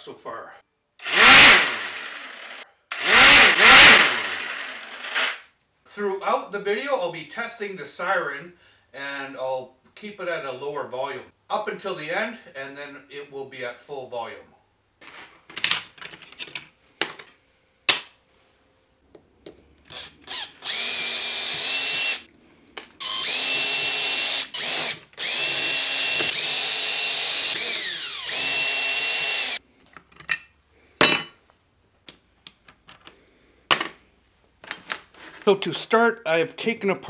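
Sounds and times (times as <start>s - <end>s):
cordless drill whining: 1.0s - 5.4s, 19.9s - 22.3s, 23.0s - 29.6s.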